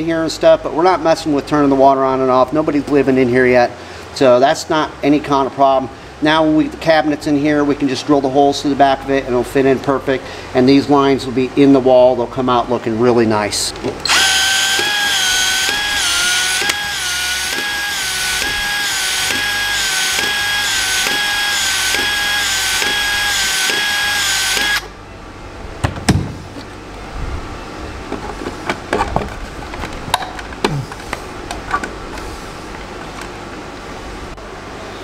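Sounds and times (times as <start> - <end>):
pipe expansion tool motor whine: 14.0 - 25.0.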